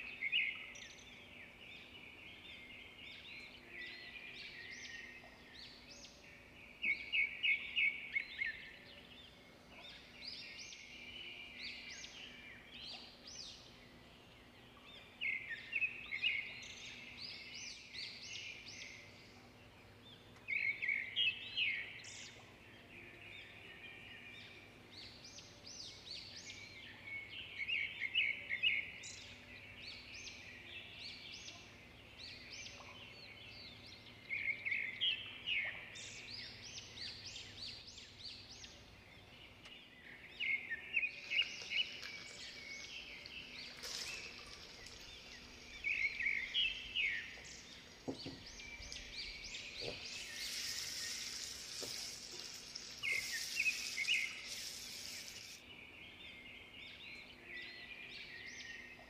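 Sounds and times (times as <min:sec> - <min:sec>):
songbird chirping: 0:00.0 - 0:59.0
dull knocks: 0:48.0 - 0:48.5
onions frying in oil: 0:50.3 - 0:55.6.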